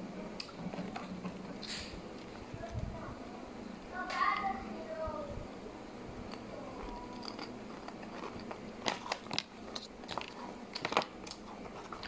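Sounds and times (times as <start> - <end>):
child chewing crunchy chips: 0.4 - 2.5, 6.3 - 12.0.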